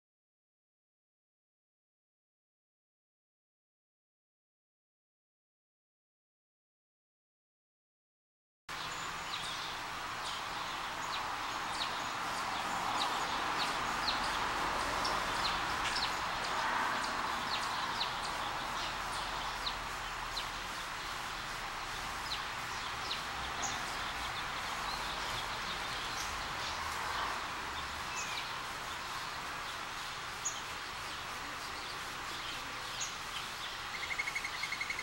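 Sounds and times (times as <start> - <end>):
birds chirping: 8.7 - 35.0
steady background hiss: 8.7 - 35.0.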